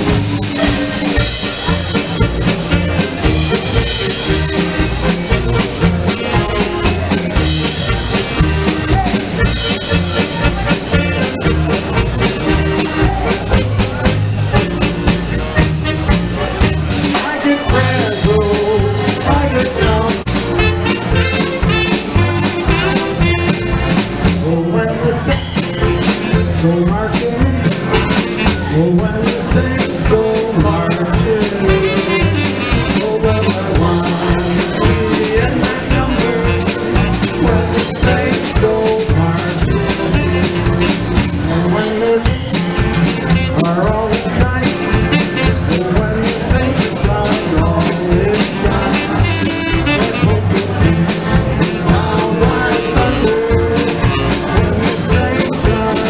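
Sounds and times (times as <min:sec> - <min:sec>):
button box accordion: 0:00.0 - 0:24.4, 0:27.7 - 0:28.8, 0:30.9 - 0:41.5, 0:42.5 - 0:56.0
acoustic guitar: 0:00.0 - 0:56.0
drum kit beat: 0:00.0 - 0:56.0
saxophone: 0:00.3 - 0:13.7, 0:15.5 - 0:18.1, 0:19.8 - 0:24.1, 0:31.7 - 0:33.0, 0:42.8 - 0:43.7, 0:48.8 - 0:51.9.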